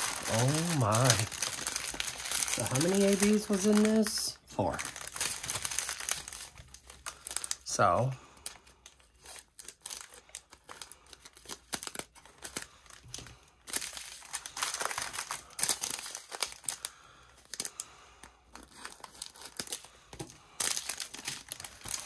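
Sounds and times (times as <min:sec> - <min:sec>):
plastic bags crinkling: 0:00.0 - 0:17.9, 0:18.5 - 0:22.0.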